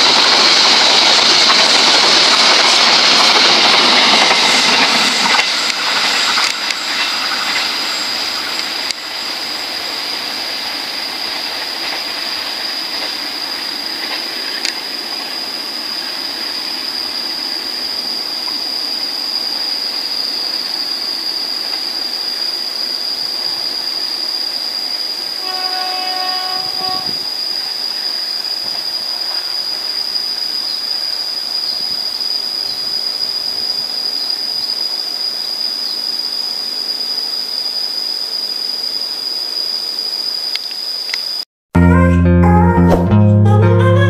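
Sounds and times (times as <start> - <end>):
passenger train running: 0.0 - 40.0
locomotive horn: 25.4 - 27.3.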